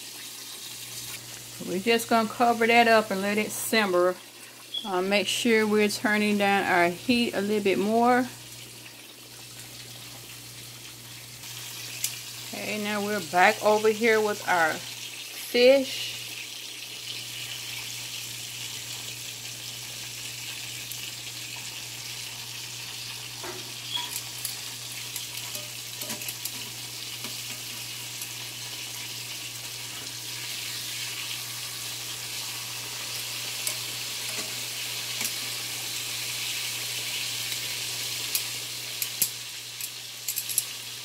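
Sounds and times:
fish frying in hot grease: 0:00.0 - 0:41.0
tongs clicking: 0:23.9 - 0:27.4, 0:38.3 - 0:40.7.

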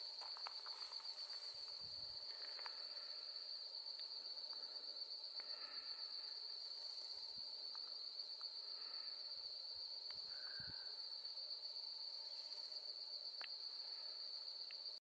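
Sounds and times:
insects trilling: 0:00.0 - 0:15.0
brief insect chirps: 0:10.0 - 0:11.0.

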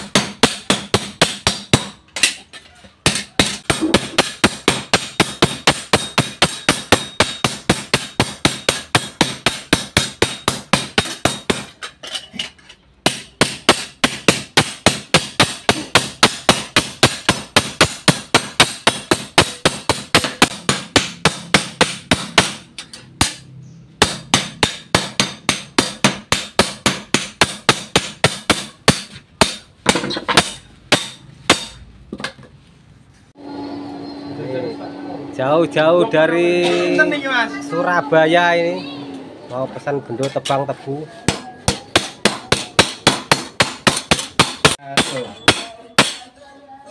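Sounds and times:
hammers striking metal on anvil: 0:00.0 - 0:12.2, 0:13.0 - 0:31.8, 0:41.2 - 0:46.3.

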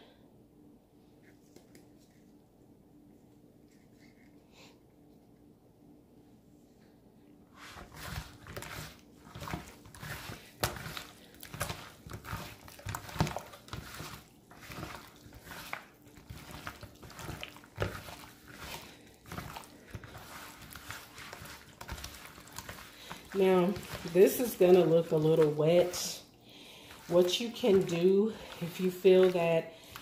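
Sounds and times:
wet squelching of kneaded chicken: 0:07.6 - 0:30.0.

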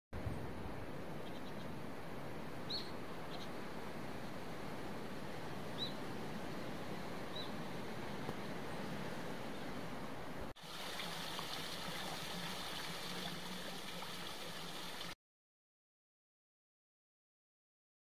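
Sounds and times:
bird chirp: 0:01.2 - 0:01.7, 0:02.7 - 0:03.6, 0:05.8 - 0:06.0, 0:07.3 - 0:07.6
rushing water: 0:01.8 - 0:15.2
water splashing from water wheel: 0:10.6 - 0:15.2.

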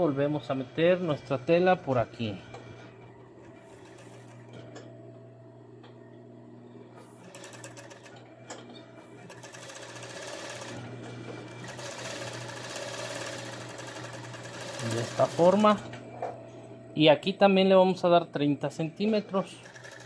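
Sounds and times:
sewing machine motor humming: 0:01.5 - 0:04.9, 0:06.9 - 0:16.0, 0:19.1 - 0:20.0
rapid machine stitching: 0:03.4 - 0:04.6, 0:07.2 - 0:08.3, 0:09.2 - 0:15.8, 0:19.5 - 0:20.0.

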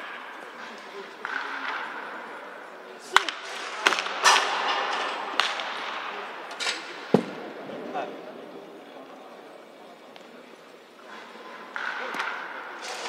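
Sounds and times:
wooden bats hitting baseballs: 0:00.0 - 0:07.6, 0:11.3 - 0:13.0
murmur of voices: 0:00.0 - 0:13.0.

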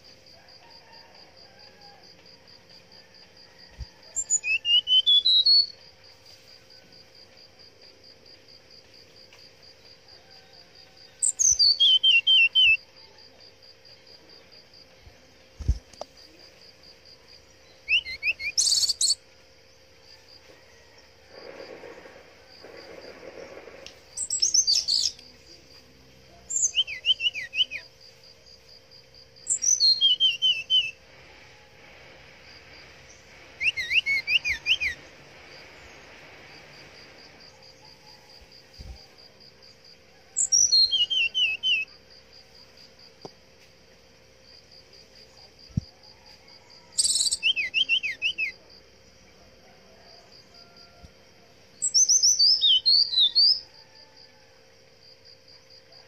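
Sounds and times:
bird singing whistled phrases: 0:04.2 - 0:05.8, 0:11.2 - 0:12.8, 0:17.8 - 0:19.2, 0:26.5 - 0:27.9, 0:29.6 - 0:31.0, 0:33.6 - 0:35.0, 0:47.0 - 0:48.6.

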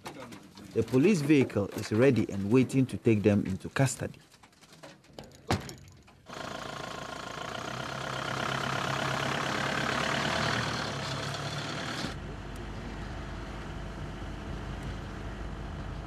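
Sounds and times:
diesel engine driving off: 0:06.3 - 0:16.0
vehicle rumble inside cab: 0:06.3 - 0:16.0.

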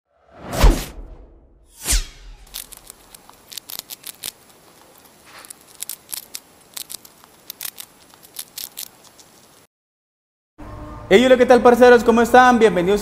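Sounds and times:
crackling clicks and snaps: 0:02.3 - 0:09.7
faint hiss: 0:02.5 - 0:09.7.

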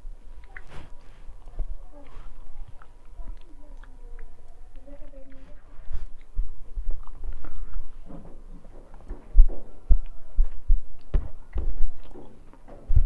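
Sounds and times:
chewing and mouth noises: 0:00.4 - 0:09.2
low thuds: 0:06.3 - 0:13.0.

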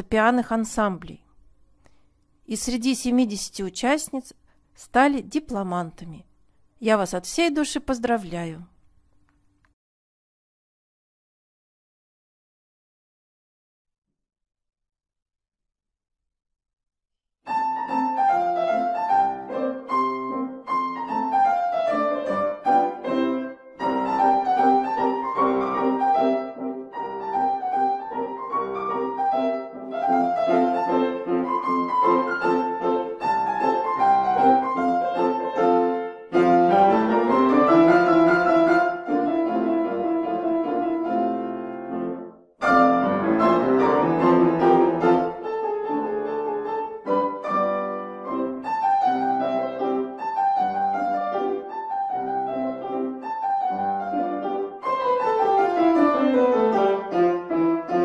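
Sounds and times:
classical piano duet: 0:17.5 - 0:58.0.

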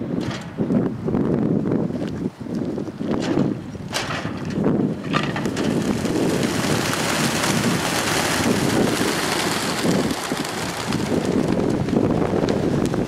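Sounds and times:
pigeons wings fluttering: 0:04.9 - 0:13.0.

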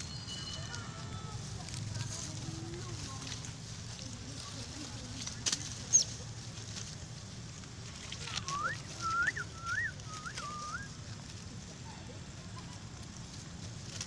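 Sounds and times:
low outdoor background: 0:00.0 - 0:14.0
animal whistled call: 0:08.4 - 0:10.9.

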